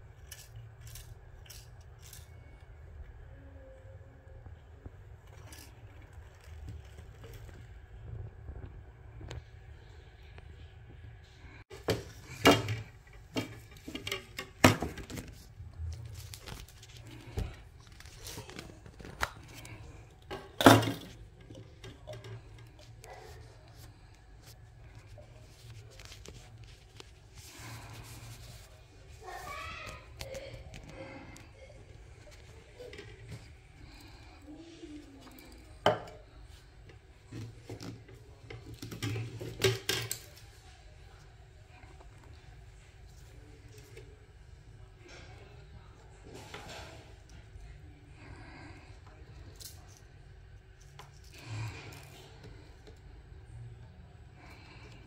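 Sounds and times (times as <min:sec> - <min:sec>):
faint low hum: 0:00.0 - 0:55.0
plastic parts clicking and clattering: 0:11.7 - 0:23.0.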